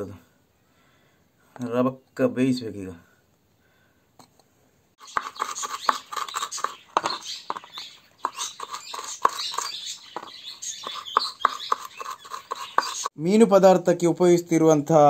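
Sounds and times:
knife scraping through pieces: 5.0 - 13.1.

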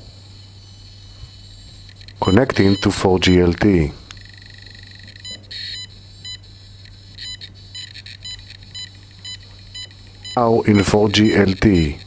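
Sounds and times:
faint steady hum: 0.0 - 12.0
short electronic beeps: 2.0 - 3.0.

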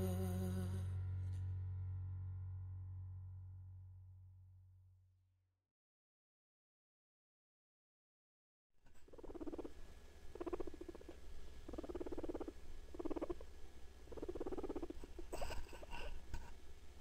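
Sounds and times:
guinea pig purring: 8.9 - 16.5.

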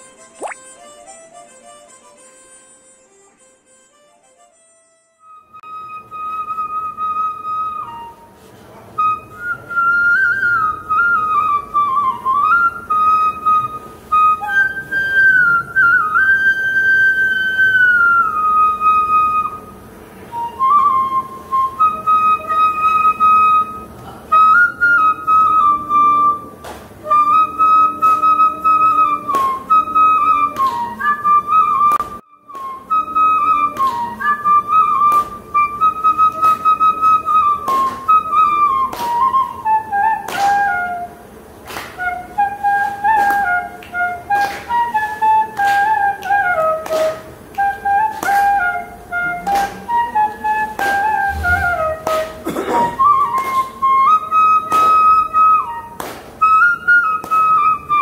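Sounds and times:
bamboo flute melody: 0.0 - 58.0.

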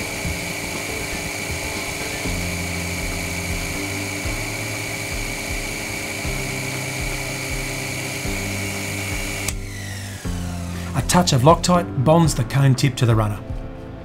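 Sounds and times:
lathe whining: 0.0 - 11.4
background music low notes: 0.0 - 14.0.

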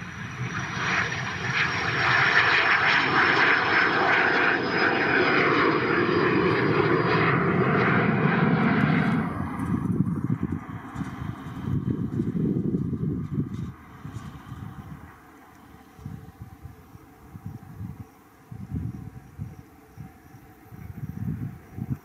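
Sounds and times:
airliner engine noise: 0.0 - 22.0.

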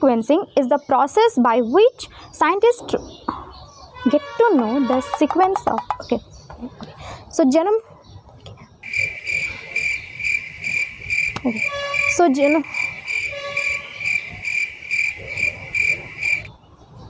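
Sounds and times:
cricket chirping: 8.8 - 16.5
short wavering pitched calls: 8.8 - 16.5.

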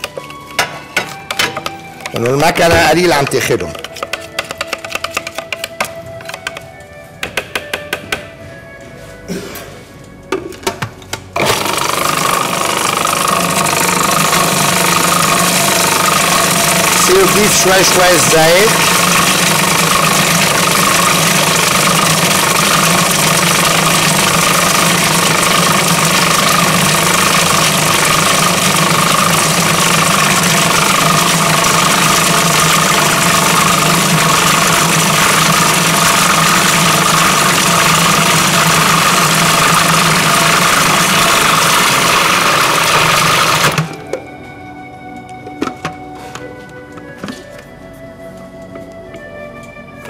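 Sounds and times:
food processor motor running: 1.1 - 6.5, 11.4 - 44.0.

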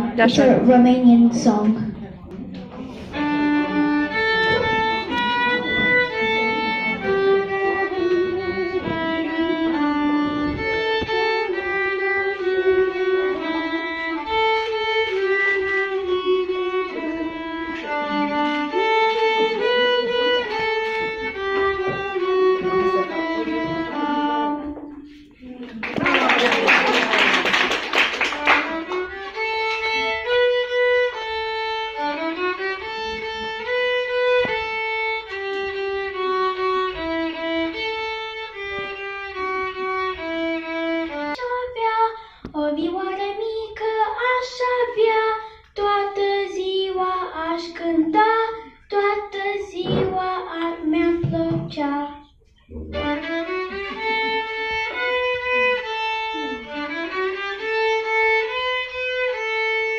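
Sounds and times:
solo violin melody: 2.7 - 25.4, 28.0 - 59.9.

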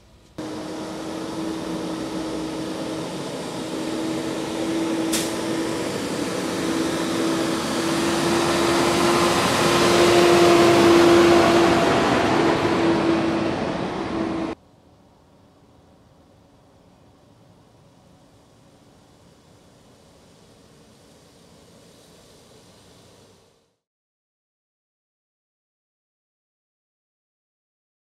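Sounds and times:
garbage truck engine droning: 0.4 - 14.6.

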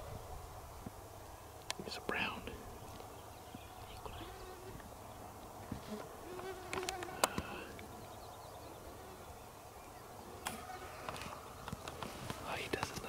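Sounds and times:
mosquitoes buzzing: 5.8 - 7.7.

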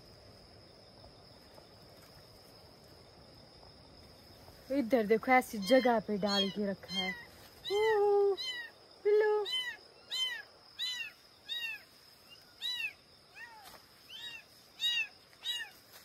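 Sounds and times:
kittens mewing: 9.5 - 11.8.

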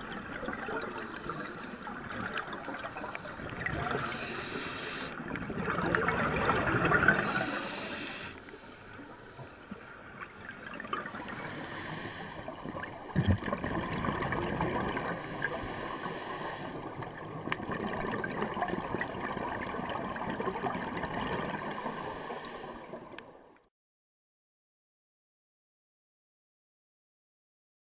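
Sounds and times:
diver exhaling bubbles: 0.0 - 7.9, 10.6 - 16.0
underwater hiss: 0.2 - 13.2, 14.9 - 17.0, 21.4 - 23.2.

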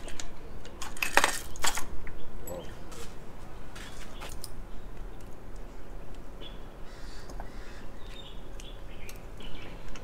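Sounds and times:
metal tools and parts clinking: 0.0 - 2.7.

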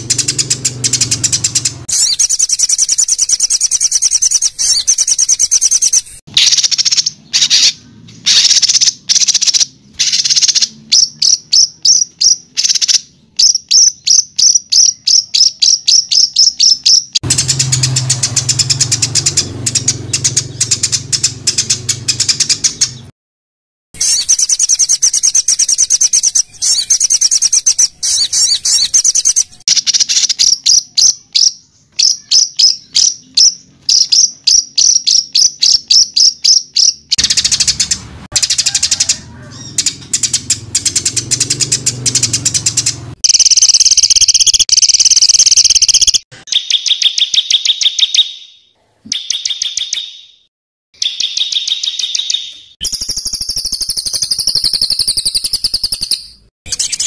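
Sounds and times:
fast bird trill: 0.0 - 23.1, 24.0 - 50.4, 51.0 - 57.0
harsh buzzing rattling bird call: 0.0 - 23.1, 24.0 - 30.8, 31.4 - 46.8
recorded songbird song: 0.0 - 23.1, 24.0 - 57.0.

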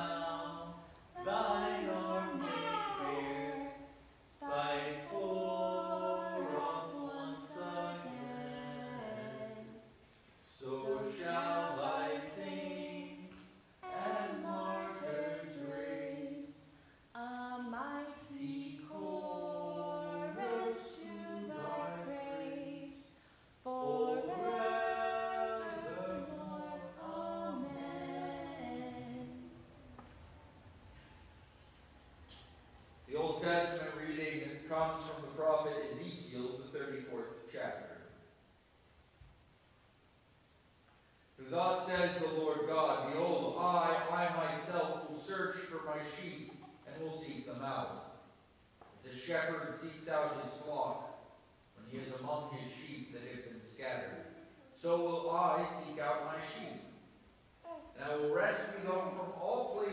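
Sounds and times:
choir singing unaccompanied: 0.0 - 9.9, 10.5 - 16.6, 17.2 - 30.6.

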